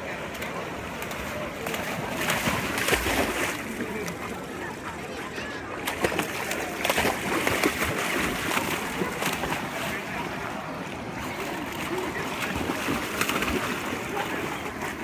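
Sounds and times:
stream running water: 0.0 - 15.0
dog splashing through water: 0.4 - 3.7, 5.8 - 10.1, 11.4 - 15.0.

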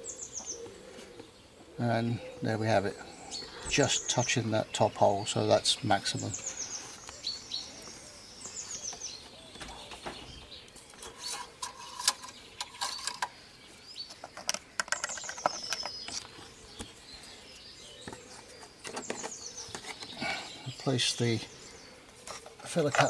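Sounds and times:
small bird chirping: 0.0 - 23.0
clicks and knocks of handled plastic: 14.1 - 16.9, 22.3 - 23.0.

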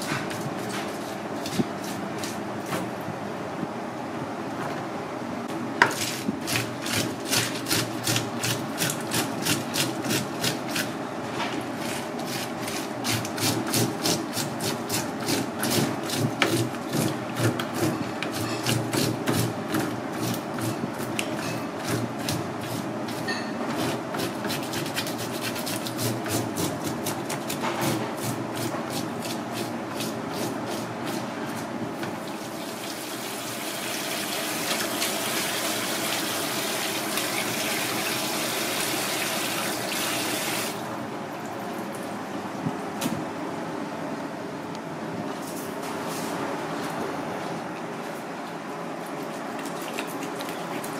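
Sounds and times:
tap water running: 32.2 - 40.8.

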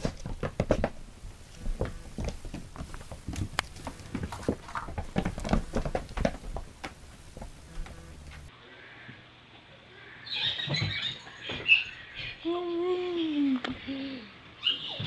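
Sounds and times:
cats scampering on floor: 0.0 - 8.5.

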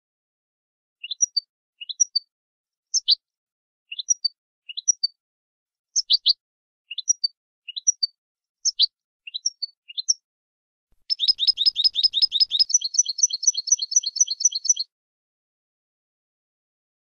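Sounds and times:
goldfinch singing: 1.0 - 2.3, 3.9 - 5.2, 6.0 - 10.2, 11.0 - 14.9.

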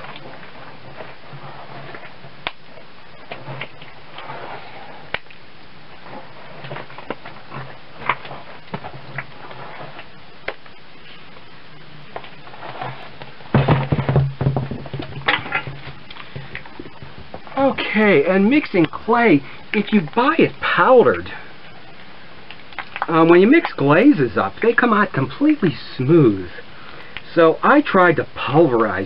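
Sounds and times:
hands squelching wet clay: 16.0 - 27.5.

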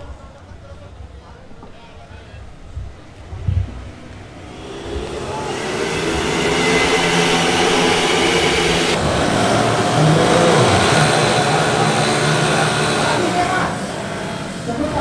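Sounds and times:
racing motorcycle engines revving: 3.0 - 15.0.

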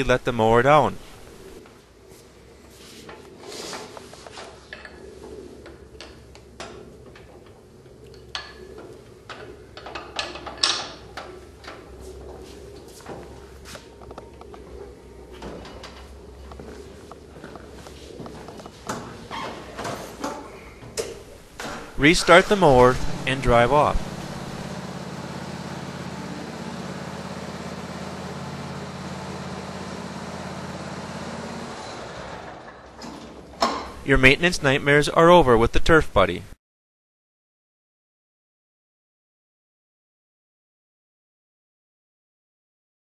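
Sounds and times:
lawn mower engine running: 21.3 - 33.3.

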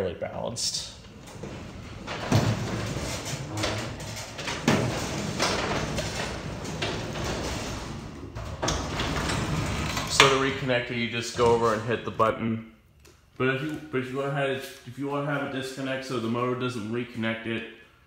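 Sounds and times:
garage door rollers rumbling: 0.8 - 12.3.

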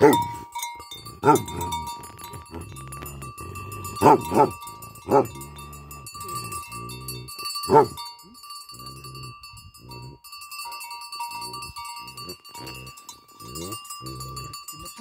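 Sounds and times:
dog barking: 0.0 - 0.4, 1.2 - 1.6, 4.0 - 5.4, 7.7 - 8.0.

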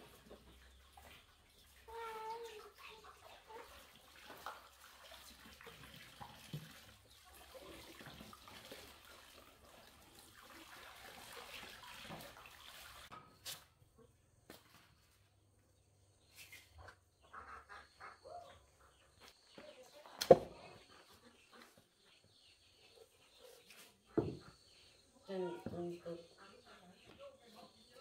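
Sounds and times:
water splashing and trickling: 0.0 - 13.8.

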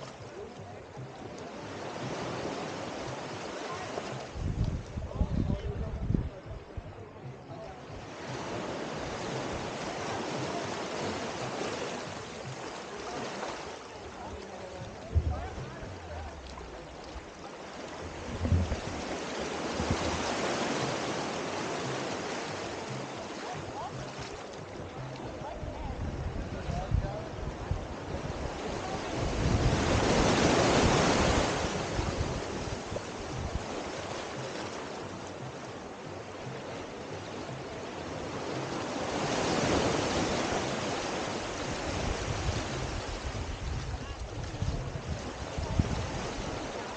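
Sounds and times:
small waves washing on shore: 0.0 - 46.9
wind buffeting microphone: 4.3 - 7.0, 14.7 - 17.3, 18.0 - 20.3, 41.8 - 46.6.

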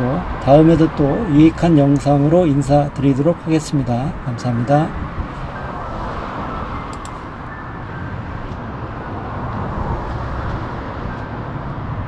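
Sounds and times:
road traffic noise: 0.0 - 12.0.

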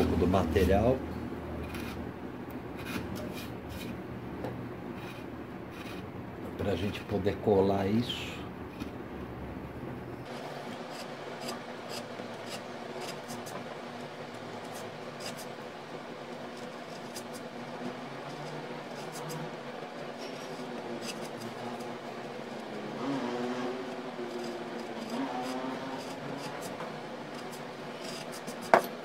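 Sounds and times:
steady low hum: 0.0 - 29.0
scraper scratching wood: 1.6 - 2.0, 2.8 - 4.0, 5.0 - 6.0, 10.3 - 15.6, 16.3 - 29.0.

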